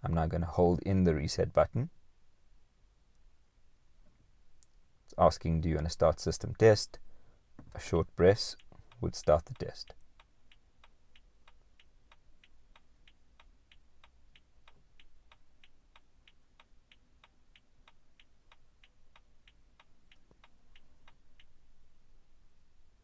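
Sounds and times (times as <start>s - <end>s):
turn-signal ticking: 8.0s - 21.6s.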